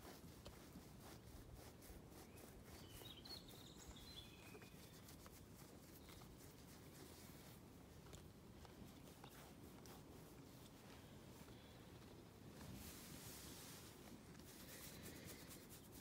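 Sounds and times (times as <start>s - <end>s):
faint outdoor ambience: 0.0s - 16.0s
faint high bird chirps: 2.2s - 6.3s.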